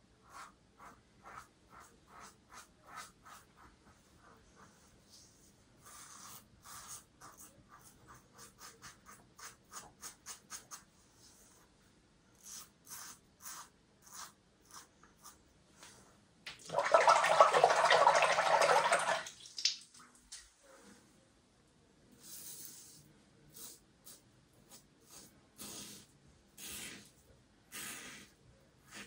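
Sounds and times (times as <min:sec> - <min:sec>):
tap water running: 0:16.5 - 0:20.0.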